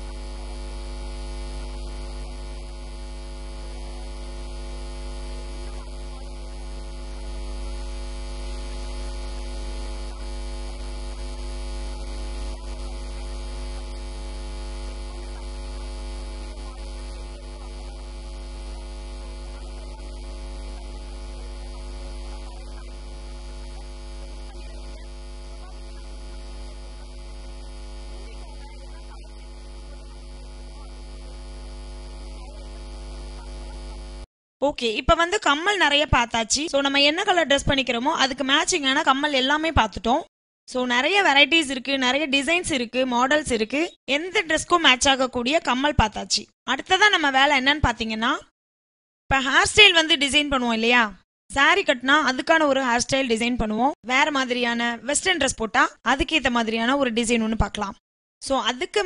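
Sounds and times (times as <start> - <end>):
electrical mains hum: 0.0 - 34.3.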